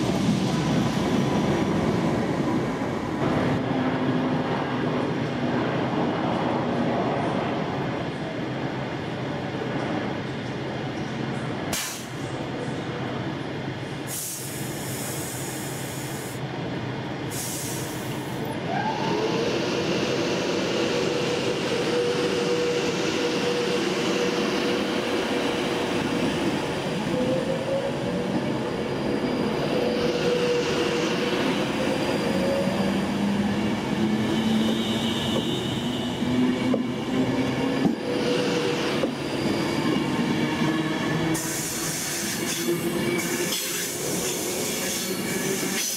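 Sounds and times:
train air hisses: 11.7 - 12.3, 14.0 - 16.4, 17.2 - 18.4, 41.3 - 45.9.

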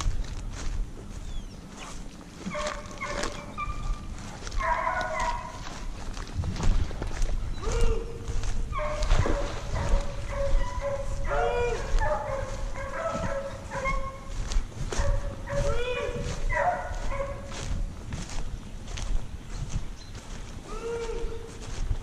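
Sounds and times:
hounds baying: 2.4 - 6.0, 7.5 - 17.8.

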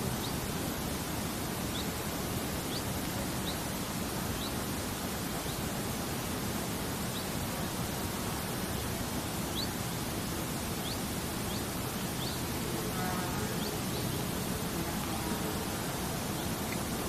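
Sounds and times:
steady stream hiss: 0.0 - 17.0
faint high chirps: 9.4 - 17.0.

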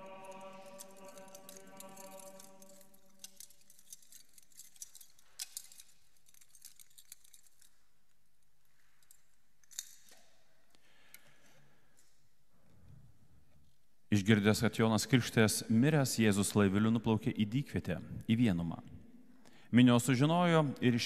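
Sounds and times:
small metallic clinks: 0.0 - 12.4.

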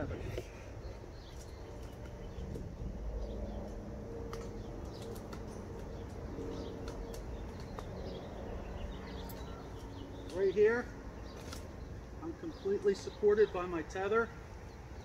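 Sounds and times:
low outdoor rumble: 0.0 - 15.0
clicks of rope and saddle gear: 3.6 - 8.2, 11.3 - 11.8.

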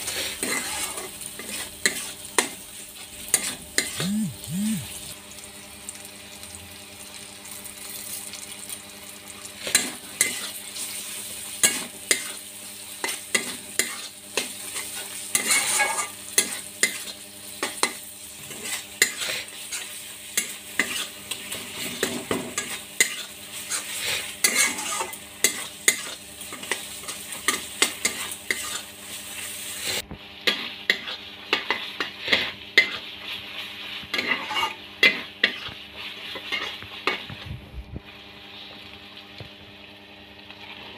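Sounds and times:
frying sizzle: 0.0 - 40.9
metal spatula scraping pan: 0.1 - 2.2, 14.8 - 17.1, 18.4 - 28.9, 34.1 - 37.2.

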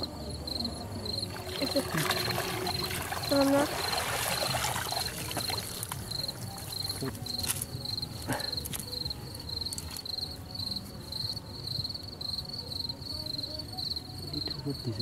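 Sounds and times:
insect chirping in high trills: 0.0 - 15.0
wet net clicks and rustles: 9.7 - 10.1.

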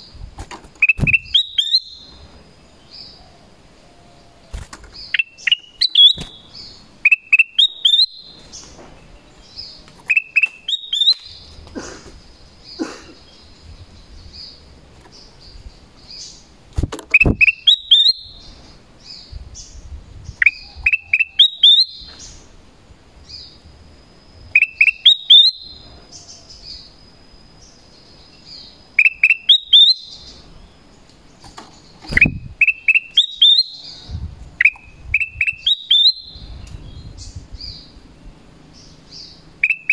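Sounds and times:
bird calling rising whistles: 0.8 - 2.1, 5.1 - 8.3, 10.1 - 11.4, 17.1 - 18.4, 20.4 - 22.1, 24.5 - 25.8, 29.0 - 30.2, 32.0 - 36.5.

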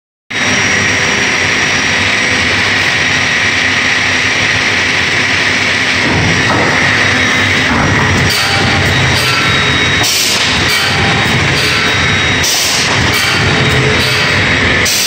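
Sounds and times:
industrial woodworking machinery running: 0.3 - 15.0
low hum: 0.3 - 15.0.

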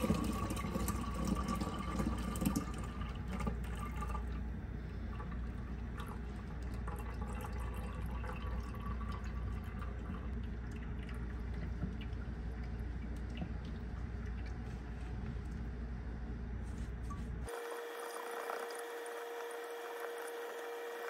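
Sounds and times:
liquid trickling into a jar: 0.0 - 15.1.

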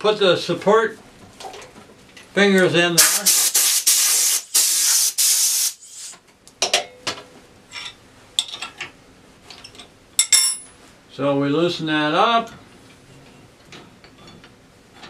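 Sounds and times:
air blow gun hissing: 3.0 - 6.2.

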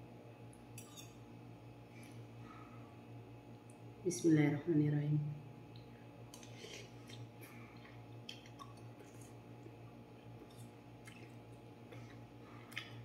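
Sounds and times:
person chewing noodles: 6.4 - 13.0.

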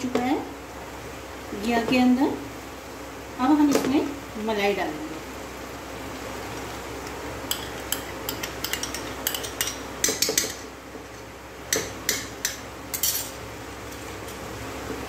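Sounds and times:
metal spoon clinking on steel bowl: 7.5 - 10.6, 11.7 - 13.4.

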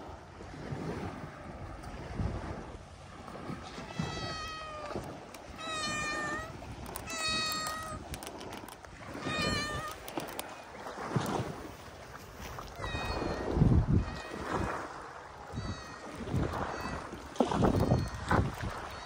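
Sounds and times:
cat meowing: 3.6 - 8.2, 9.0 - 10.4, 12.6 - 19.0.

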